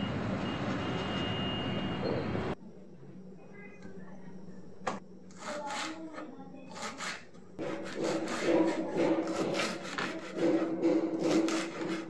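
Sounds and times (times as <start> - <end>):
steady low hum: 2.5 - 12.0
knife chopping on wooden board: 7.6 - 12.0.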